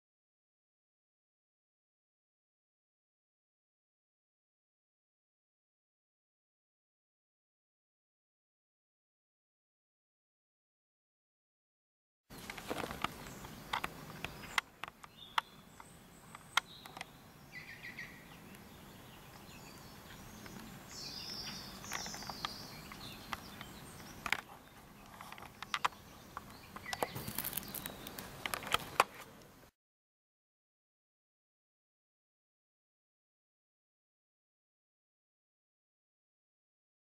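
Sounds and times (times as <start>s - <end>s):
small birds chirping: 12.3s - 29.7s.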